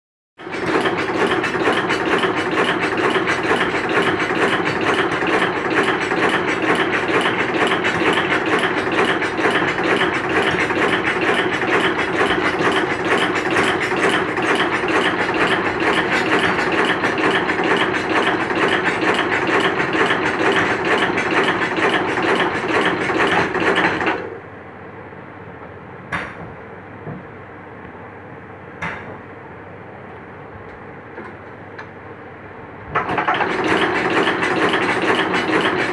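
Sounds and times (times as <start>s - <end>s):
machine clattering: 0.4s - 24.2s, 33.0s - 35.9s
steady machine hum: 0.4s - 35.9s.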